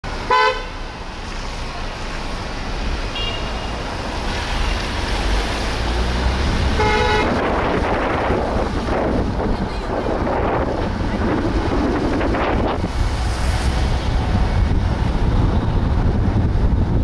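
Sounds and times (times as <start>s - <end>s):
traffic and road noise: 0.0s - 17.0s
wind: 0.0s - 17.0s
car horn beep: 0.3s - 0.8s, 3.1s - 3.8s, 6.7s - 7.4s.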